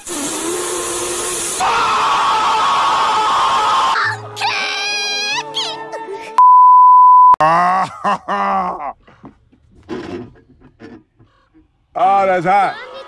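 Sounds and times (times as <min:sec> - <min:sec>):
censor bleep: 0:06.4 - 0:07.4
man groaning: 0:07.4 - 0:08.9.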